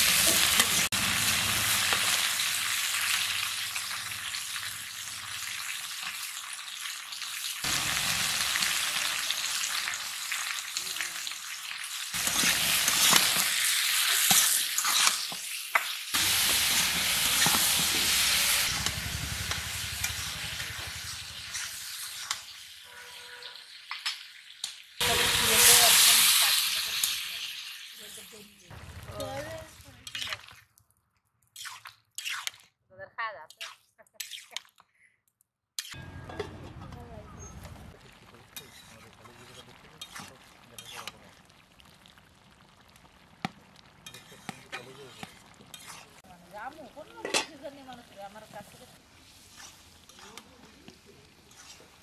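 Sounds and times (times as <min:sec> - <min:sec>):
food sizzling in oil: 0:00.0 - 0:30.6, 0:37.1 - 0:52.0
metal spatula scraping pan: 0:38.6 - 0:39.2, 0:40.0 - 0:41.2, 0:44.0 - 0:46.2, 0:49.3 - 0:50.6, 0:51.5 - 0:52.0.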